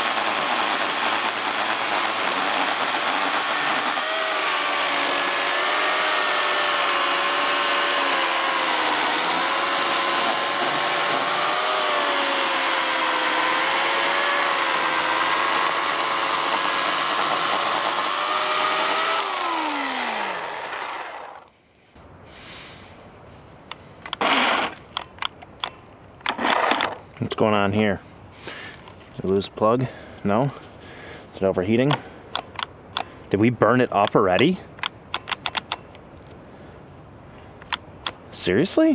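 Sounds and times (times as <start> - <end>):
electric chainsaw cutting log: 0.0 - 21.5, 24.1 - 24.8, 26.3 - 27.0.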